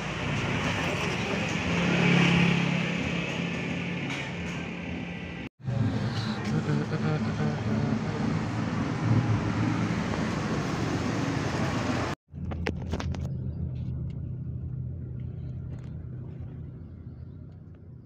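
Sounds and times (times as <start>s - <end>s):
car engine hum from cabin: 5.7s - 10.7s, 11.8s - 18.0s.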